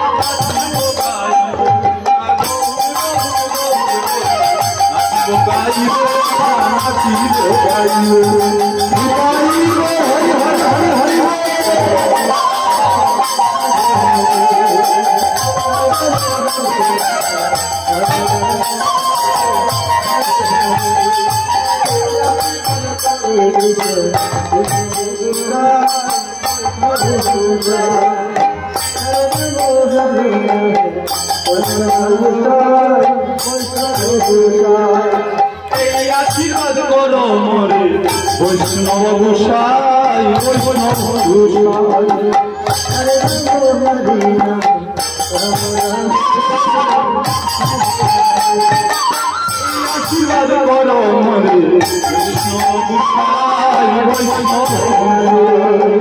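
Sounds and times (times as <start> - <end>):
devotional melody with bending notes: 0.0 - 56.0
jingling cymbals: 2.4 - 30.2, 31.0 - 32.5, 47.2 - 50.9, 51.8 - 53.1.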